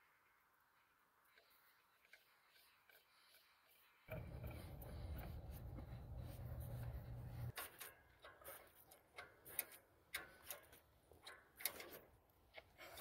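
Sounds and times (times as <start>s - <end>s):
low steady hum: 4.1s - 7.6s
filter clicking and scraping: 4.1s - 13.0s.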